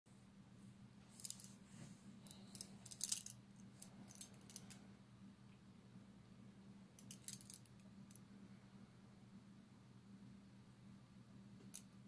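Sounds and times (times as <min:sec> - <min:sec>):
faint low hum: 0:00.1 - 0:12.0
handcuff chain clinking: 0:02.3 - 0:04.8, 0:07.0 - 0:07.7.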